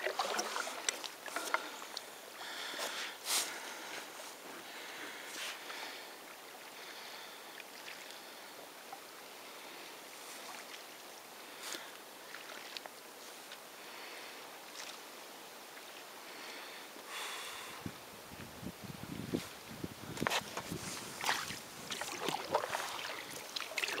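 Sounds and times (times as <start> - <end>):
soft water splashes: 0.0 - 2.7, 5.1 - 13.9, 20.7 - 24.0
water lapping against a canoe: 0.0 - 15.1, 20.0 - 24.0.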